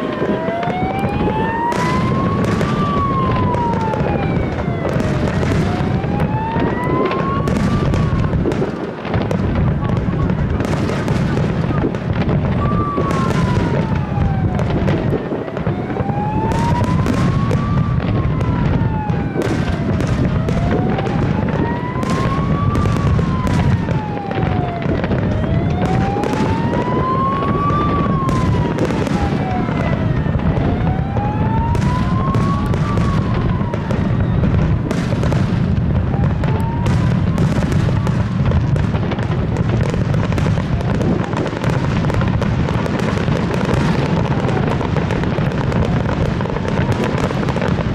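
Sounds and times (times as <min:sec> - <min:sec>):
fireworks bursting and crackling: 0:00.0 - 0:47.9
siren wailing: 0:00.0 - 0:47.9.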